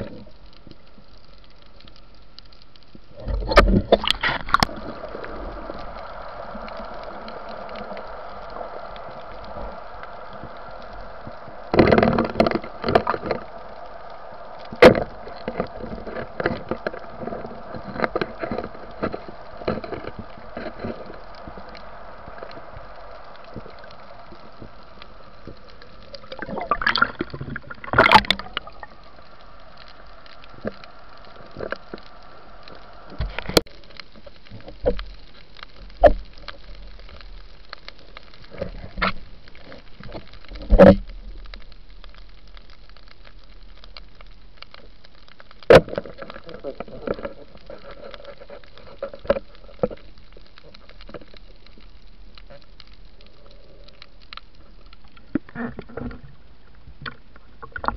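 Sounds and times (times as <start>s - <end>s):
underwater hum and water noise: 0.0s - 57.9s
bubbling bursts: 3.3s - 31.9s.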